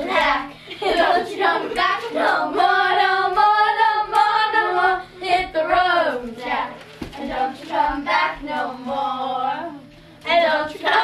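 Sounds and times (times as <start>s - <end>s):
girls singing together: 0.0s - 11.0s.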